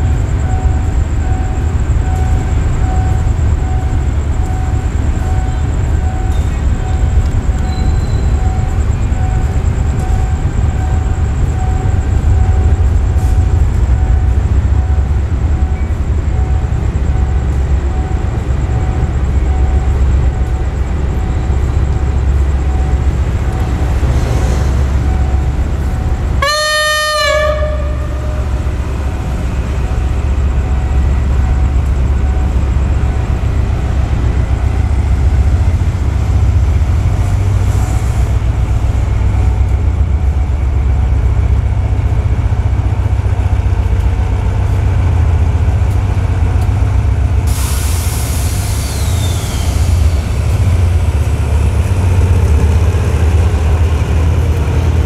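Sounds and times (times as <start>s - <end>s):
faint high whine: 0.0s - 43.4s
diesel locomotive idling: 0.0s - 55.0s
locomotive air horn blast: 26.4s - 28.8s.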